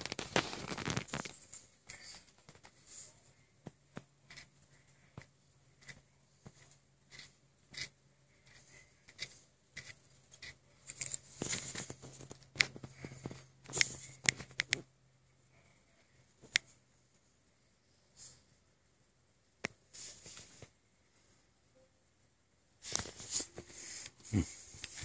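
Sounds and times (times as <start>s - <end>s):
paper-like rustling: 0.0s - 3.2s, 22.8s - 25.0s
faint low hum: 0.0s - 25.0s
small clicks and taps: 10.9s - 14.9s.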